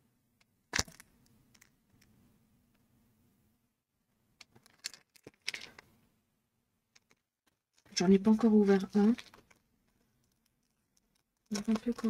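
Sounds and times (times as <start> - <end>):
plastic packets crinkling: 4.5 - 5.8, 7.8 - 9.6, 10.4 - 12.0.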